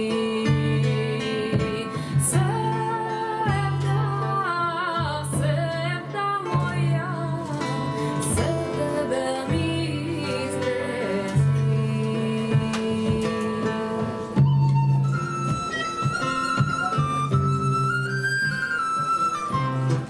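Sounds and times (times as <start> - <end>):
woman singing folk song: 0.0 - 18.7
plucked strings: 0.0 - 20.0
violin bowing: 13.4 - 20.0.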